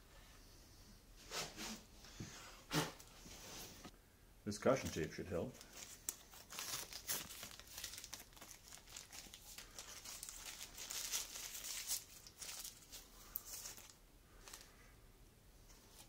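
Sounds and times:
plastic tape crinkling: 0:05.0 - 0:14.7.

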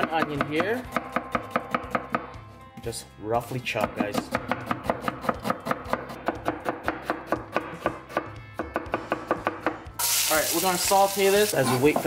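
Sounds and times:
knife chopping on plastic board: 0:00.0 - 0:02.4, 0:03.8 - 0:09.8.

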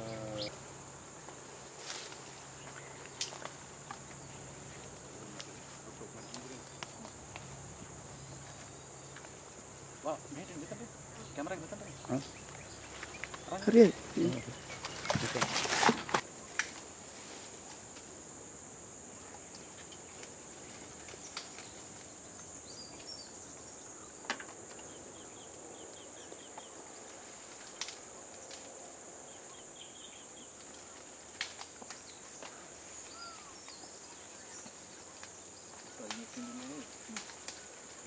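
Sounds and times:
insect drone: 0:00.0 - 0:38.0
twigs snapping: 0:03.0 - 0:04.2, 0:21.0 - 0:21.9, 0:27.6 - 0:28.9, 0:30.6 - 0:32.6, 0:34.6 - 0:37.7.

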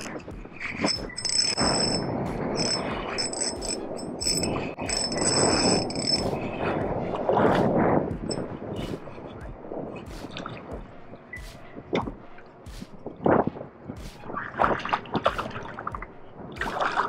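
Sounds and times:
steady rushing noise: 0:00.0 - 0:17.0
spinning reel buzzing: 0:00.7 - 0:06.5.

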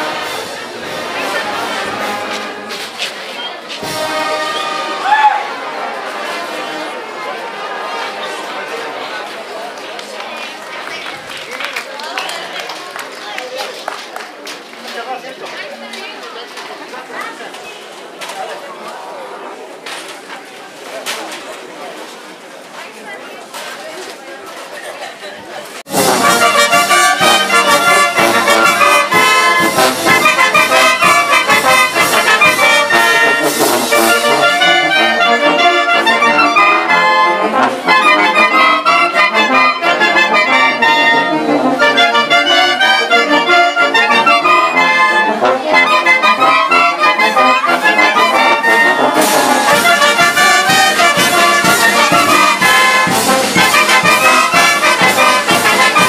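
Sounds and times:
trumpets and sousaphones: 0:00.0 - 0:03.0, 0:03.8 - 0:09.2, 0:25.9 - 0:56.0
clarinets and flutes melody: 0:03.8 - 0:07.1, 0:25.9 - 0:56.0
steady drum beat: 0:25.9 - 0:34.7, 0:48.8 - 0:56.0.

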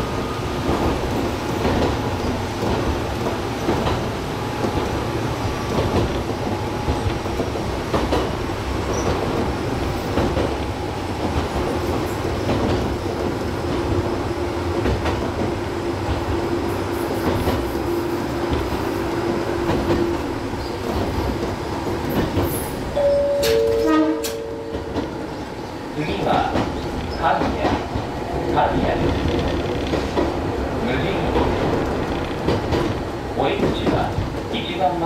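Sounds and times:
electric train rumble: 0:00.0 - 0:35.0
wheels clicking over rail joints: 0:23.4 - 0:34.6.

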